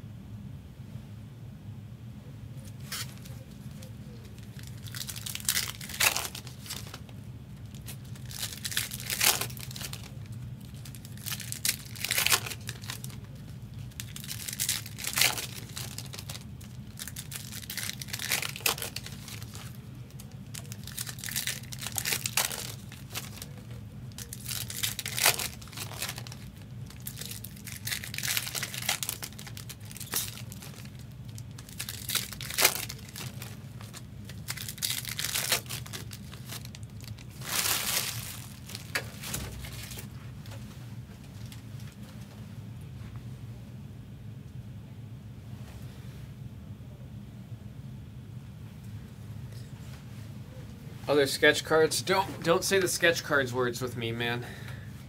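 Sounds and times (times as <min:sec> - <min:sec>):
foil wrappers crinkling: 0:02.6 - 0:40.6
foil tearing: 0:02.8 - 0:07.1, 0:07.7 - 0:40.1.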